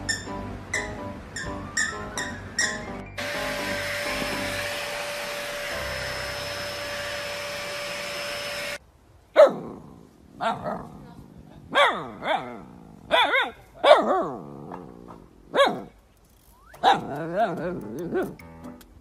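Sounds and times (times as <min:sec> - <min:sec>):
vacuum cleaner running: 0:03.2 - 0:08.8
puppy barking: 0:09.4 - 0:09.7, 0:11.7 - 0:14.4, 0:15.5 - 0:15.9.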